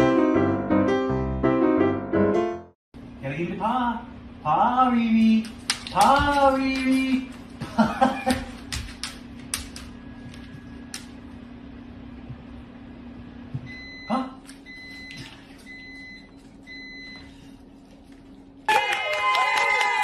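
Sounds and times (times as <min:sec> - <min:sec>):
electronic appliance beeps: 0:13.6 - 0:17.5
cheering voices: 0:18.7 - 0:20.0.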